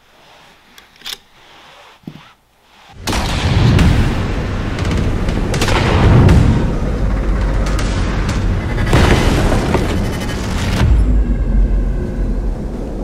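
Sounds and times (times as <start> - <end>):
loud boom with low rumble: 3.1 - 13.0.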